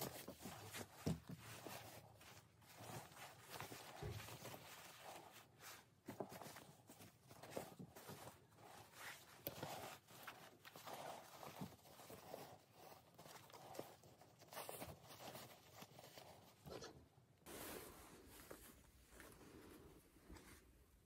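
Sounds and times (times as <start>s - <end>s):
fabric rustling: 0.0s - 21.0s.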